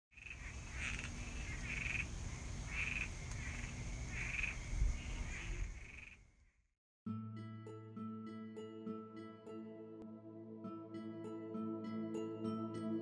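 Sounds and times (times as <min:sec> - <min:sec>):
frogs croaking: 0:00.1 - 0:06.6.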